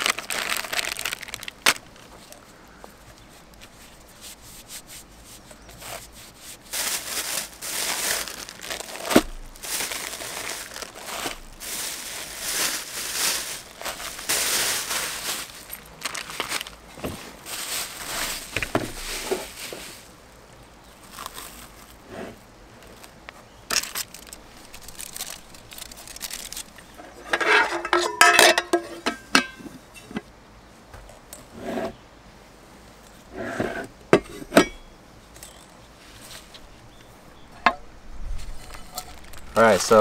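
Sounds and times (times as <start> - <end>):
plastic wrap crinkling: 0.0 - 2.5, 5.7 - 20.2, 20.9 - 22.0, 22.8 - 27.0, 38.4 - 40.0
cookware clinks and scrapes: 27.0 - 30.1.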